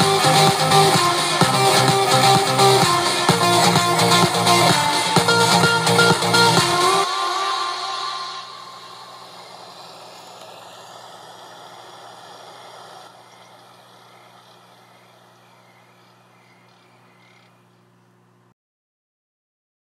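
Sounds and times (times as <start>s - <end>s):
steady low hum: 0.0s - 18.5s
faint hiss: 6.5s - 16.2s.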